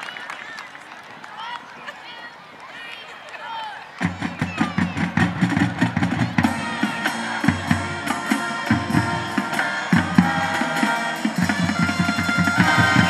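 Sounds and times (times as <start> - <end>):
marching band playing: 4.0 - 13.0
bass drums and snares: 4.1 - 13.0
brass playing: 5.8 - 13.0.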